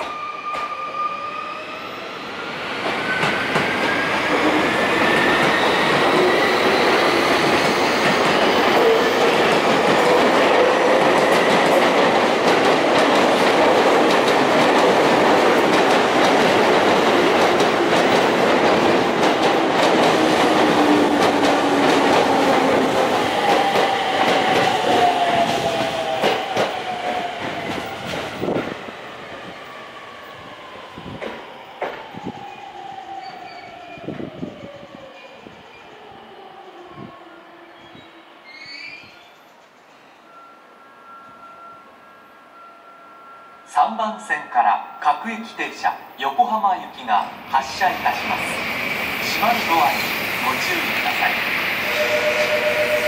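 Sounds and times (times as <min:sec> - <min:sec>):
train braking: 0:00.0 - 0:36.5, 0:37.3 - 0:46.4, 0:47.1 - 0:53.0
electric train inverter whining: 0:48.4 - 0:53.0.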